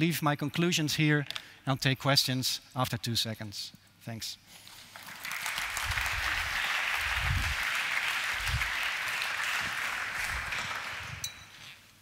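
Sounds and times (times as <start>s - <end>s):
audience applauding: 4.9s - 11.3s.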